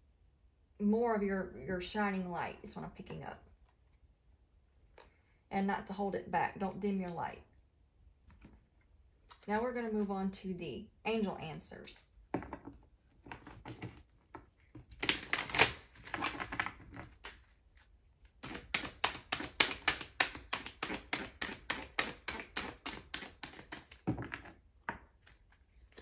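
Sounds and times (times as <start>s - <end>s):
cards rustling: 13.2s - 24.2s
sharp card slaps: 18.4s - 23.9s.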